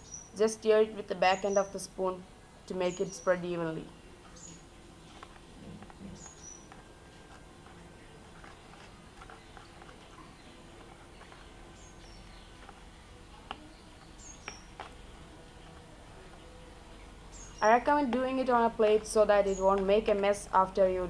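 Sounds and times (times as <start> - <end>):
birds chirping: 0.0 - 21.0
spoon scraping and clicking in paste: 5.1 - 16.5.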